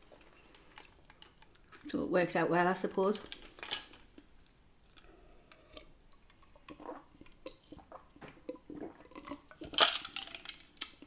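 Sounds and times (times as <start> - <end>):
person sipping and swallowing: 4.9 - 11.0.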